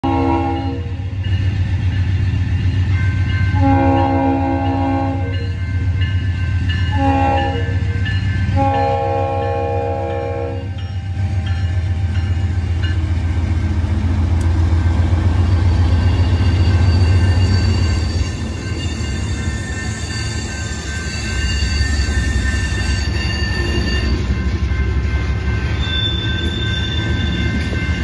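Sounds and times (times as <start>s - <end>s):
locomotive horn blasts: 0.0s - 1.0s, 3.6s - 5.5s, 6.9s - 7.9s, 8.5s - 10.8s.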